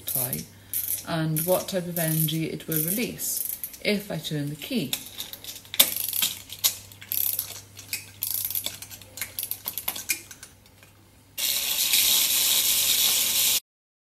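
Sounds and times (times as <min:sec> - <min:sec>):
steady hiss: 0:11.2 - 0:13.6.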